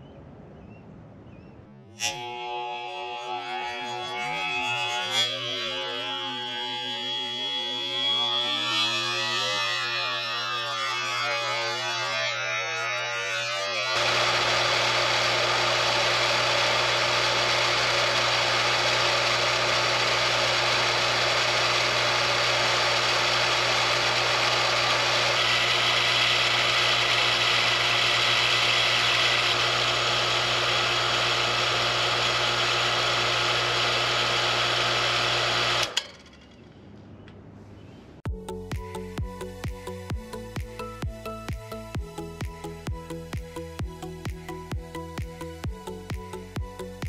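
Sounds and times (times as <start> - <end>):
electric water pump humming: 2.0 - 36.2.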